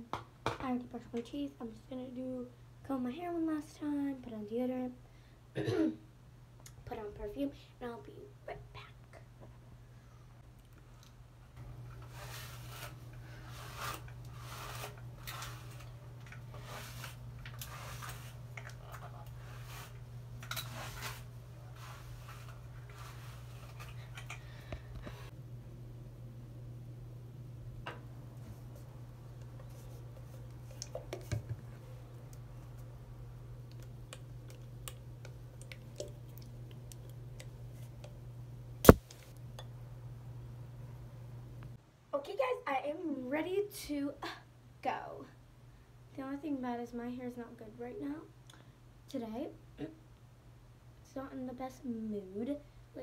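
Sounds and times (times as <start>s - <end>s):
steady low hum: 0.8s - 42.1s
hairbrush rustling through hair: 12.0s - 24.2s.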